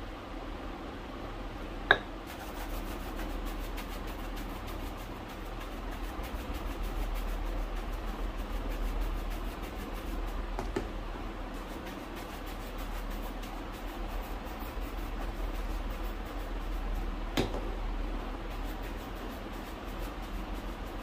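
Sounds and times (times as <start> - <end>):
shoe polishing rubbing strokes: 2.2 - 10.6, 11.5 - 17.2, 18.3 - 21.0.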